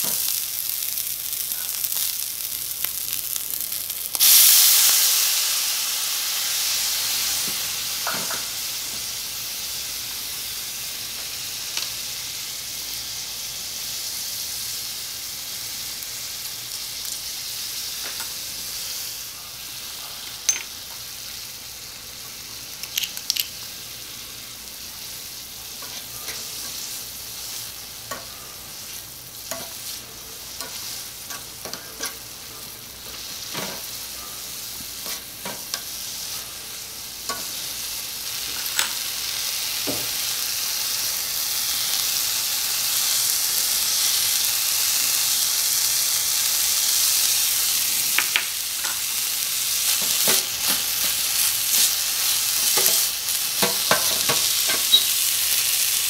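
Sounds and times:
food sizzling in wok: 0.0 - 56.0
metal spoon tapping pan: 53.6 - 55.1.

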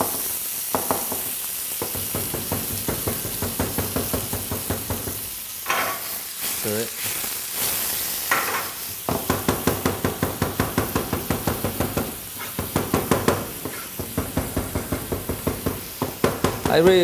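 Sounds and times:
onions sizzling in pan: 0.0 - 17.0
knife chopping on plastic board: 9.2 - 16.8.

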